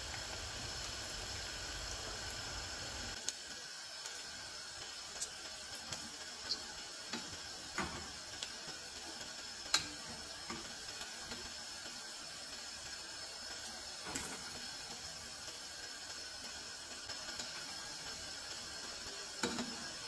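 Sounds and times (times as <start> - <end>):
dough sizzling in hot oil: 0.0 - 20.0
metal tongs clicking against pot: 9.7 - 10.6.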